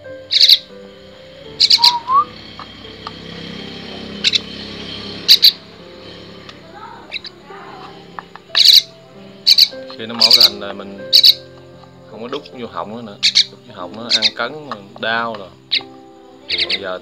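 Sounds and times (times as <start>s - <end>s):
fledgling bird begging calls: 0.0s - 11.5s, 13.2s - 14.4s, 15.6s - 16.9s
soft background music: 0.0s - 17.0s.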